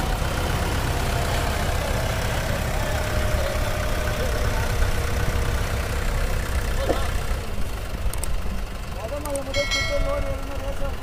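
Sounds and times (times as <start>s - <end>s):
tractor diesel engine idling: 0.0s - 11.0s.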